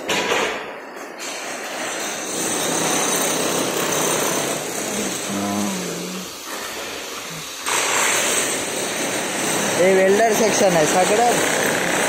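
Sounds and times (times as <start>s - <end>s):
demolition power tool running: 1.7s - 12.0s
person calling out: 5.0s - 6.3s.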